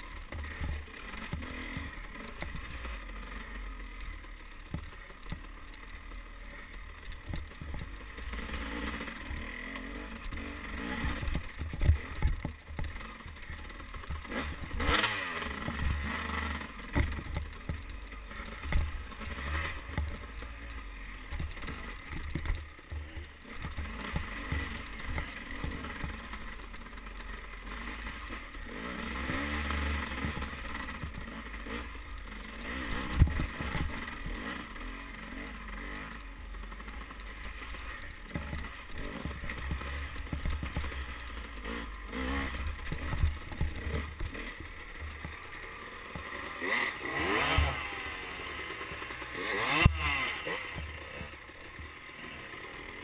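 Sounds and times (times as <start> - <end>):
dirt bike engine revving: 0.0 - 53.0
knocks and clatter from bumps: 10.3 - 15.0, 16.9 - 26.3, 37.6 - 46.5.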